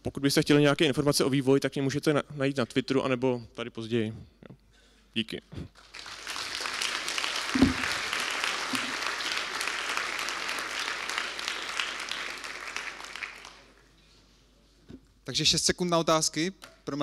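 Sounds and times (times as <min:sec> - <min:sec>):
audience applauding: 0:05.8 - 0:13.9
low thump: 0:07.6 - 0:07.8.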